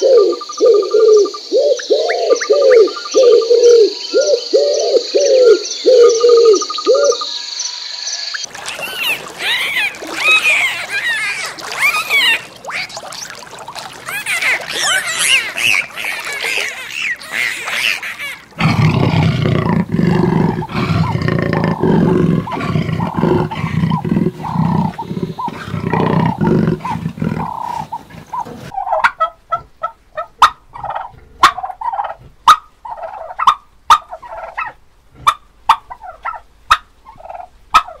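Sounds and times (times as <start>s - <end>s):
high gliding animal calls: 1.7s - 19.4s
turkeys gobbling: 8.4s - 18.7s, 26.9s - 38.0s
big cat growling: 18.6s - 28.7s.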